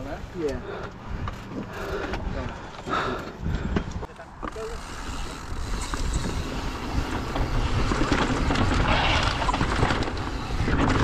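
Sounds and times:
bike rattles and clicks: 0.0s - 11.0s
wind buffeting microphone: 1.0s - 4.1s, 5.2s - 11.0s
bike tyres rumbling on dirt: 4.6s - 11.0s.

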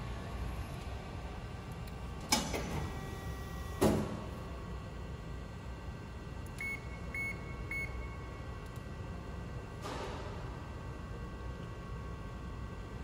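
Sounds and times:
keypad beeps: 6.6s - 8.0s.

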